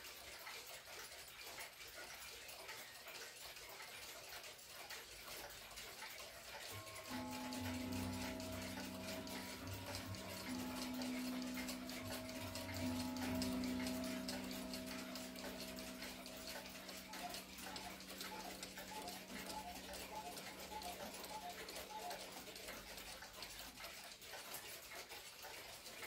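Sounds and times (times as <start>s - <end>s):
cuckoo clock: 0.0s - 26.0s
pendulum wall clocks ticking: 0.0s - 26.0s
low steady hum: 6.7s - 22.4s.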